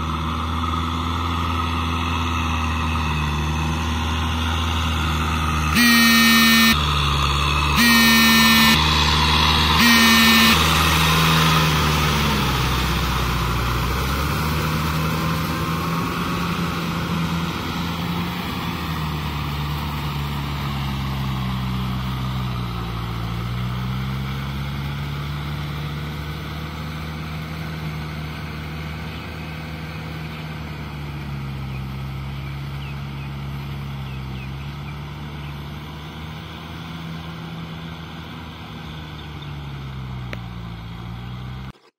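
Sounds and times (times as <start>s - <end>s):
tractor diesel engine under load: 0.0s - 41.9s
loud pitched blasts: 5.8s - 7.0s, 7.8s - 13.3s.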